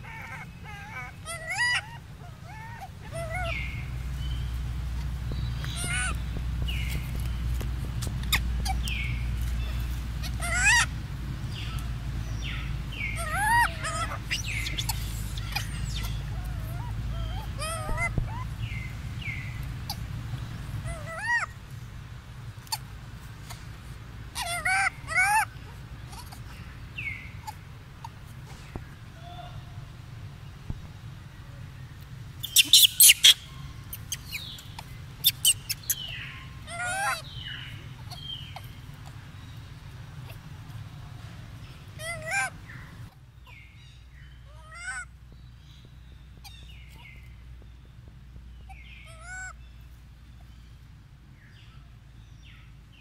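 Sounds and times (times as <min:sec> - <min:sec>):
baby monkey whimpering cries: 0:00.0 - 0:03.9, 0:05.6 - 0:06.2, 0:09.7 - 0:10.9, 0:13.0 - 0:18.8, 0:20.8 - 0:21.6, 0:24.3 - 0:26.7, 0:32.4 - 0:39.2, 0:42.0 - 0:43.6, 0:44.5 - 0:45.1, 0:48.7 - 0:49.6
steady low rumble: 0:00.0 - 0:32.6, 0:33.2 - 0:53.0.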